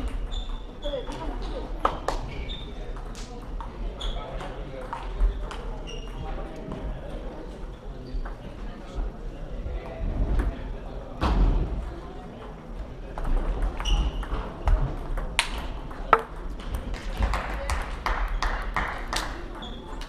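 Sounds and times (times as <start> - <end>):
chatter of voices: 0.7 - 13.8
table tennis balls clicking: 15.1 - 17.2.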